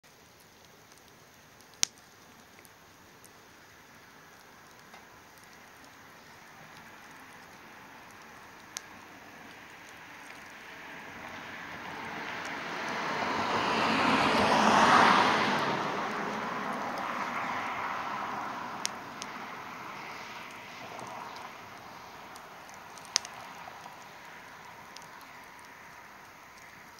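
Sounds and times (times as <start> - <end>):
wood fire crackling and popping: 0.0 - 26.9
vehicle passing: 6.4 - 26.9.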